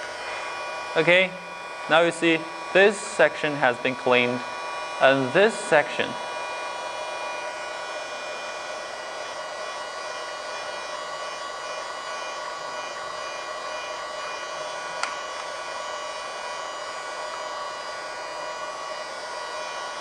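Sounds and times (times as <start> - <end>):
mini vacuum cleaner whine: 0.0 - 20.0.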